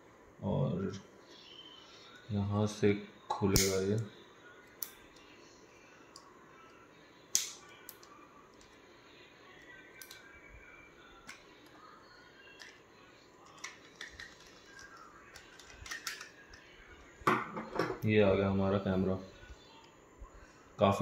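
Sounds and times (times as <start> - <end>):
plastic housing clicks: 13.5 - 16.4.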